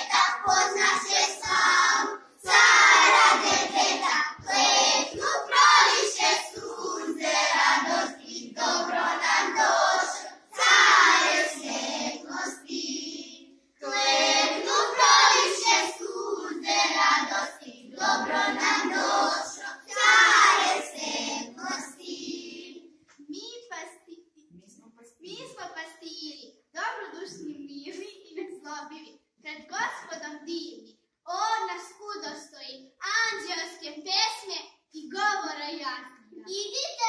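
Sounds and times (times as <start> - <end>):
children singing: 0.0 - 22.9.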